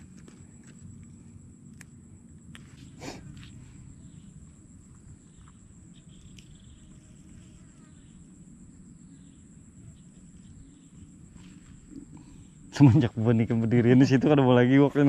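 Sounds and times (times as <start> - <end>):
insects trilling: 0.0 - 15.0
faint chirps: 1.0 - 15.0.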